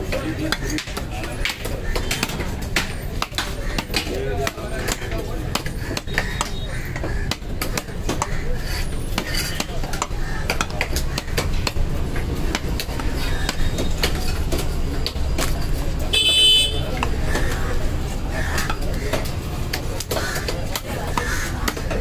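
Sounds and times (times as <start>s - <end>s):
knife chopping on wooden block: 0.5s - 15.6s.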